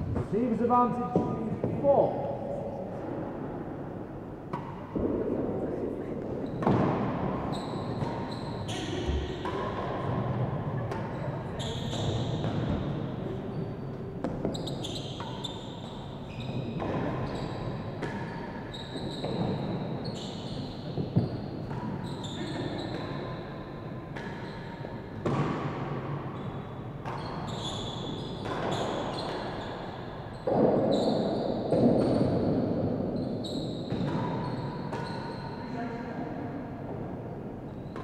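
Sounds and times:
rackets striking ball: 0:00.0 - 0:02.3.

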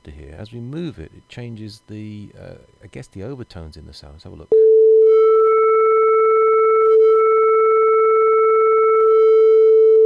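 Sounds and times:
synthesizer sine-wave tone: 0:04.5 - 0:10.0.

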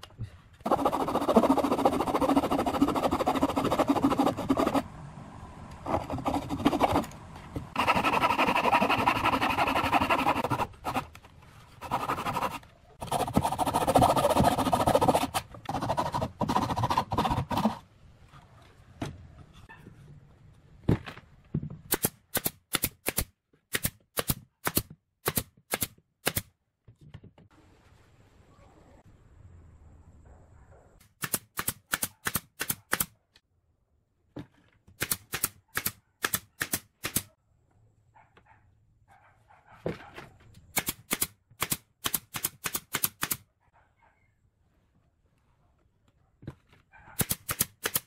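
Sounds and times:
handsaw cutting wood: 0:00.6 - 0:04.8, 0:05.9 - 0:07.1, 0:07.7 - 0:11.1, 0:11.8 - 0:17.8.

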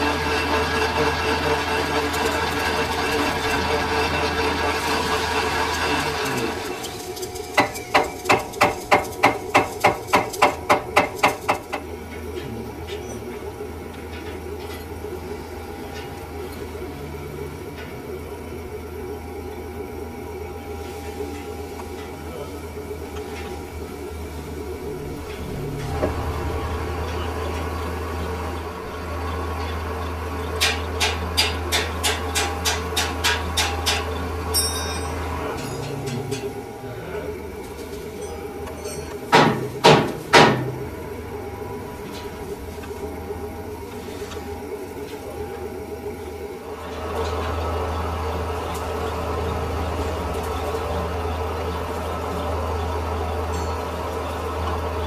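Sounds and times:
steady low hum: 0:00.0 - 0:55.0
hammer striking metal: 0:38.2 - 0:40.8.

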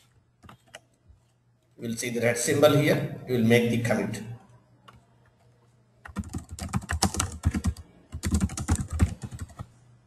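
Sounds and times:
fast typing on a keyboard: 0:06.0 - 0:09.7.

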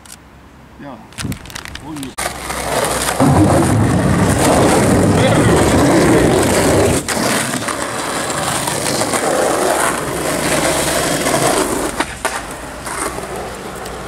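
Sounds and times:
skateboard wheels rolling on gritty ground: 0:01.2 - 0:14.0
skateboard knocks: 0:02.2 - 0:13.2.

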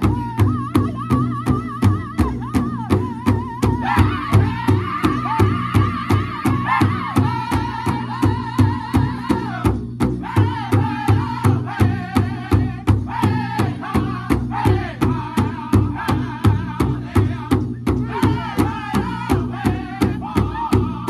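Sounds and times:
large drum beating: 0:00.0 - 0:21.0
group singing in high voices: 0:03.0 - 0:21.0.

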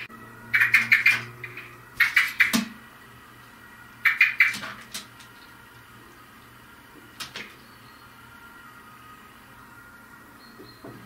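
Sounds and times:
blackbird sharp calls: 0:00.5 - 0:02.7, 0:04.0 - 0:04.7.

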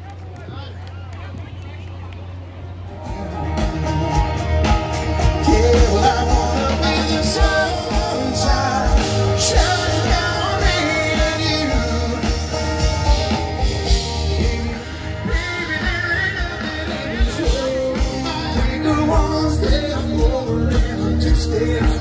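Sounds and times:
live rock band: 0:02.8 - 0:22.0
steady drum beat: 0:03.1 - 0:22.0
person singing: 0:03.5 - 0:22.0.

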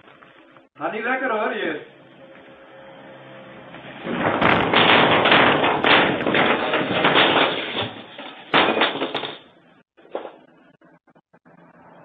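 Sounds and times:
debris crashing onto wooden floor: 0:04.0 - 0:09.5.

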